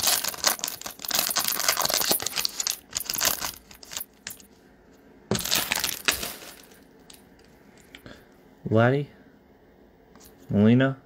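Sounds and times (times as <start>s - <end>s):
foil wrapper crinkling: 0.0s - 4.4s, 5.3s - 6.8s.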